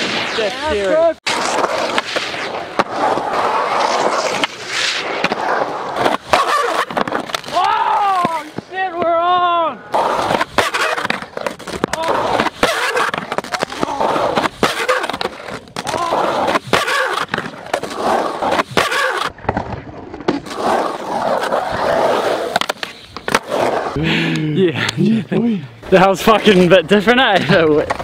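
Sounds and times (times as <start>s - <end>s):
skateboard wheels rolling on concrete: 0.0s - 28.0s
skateboard clacking on ground: 6.0s - 9.4s, 10.2s - 17.8s.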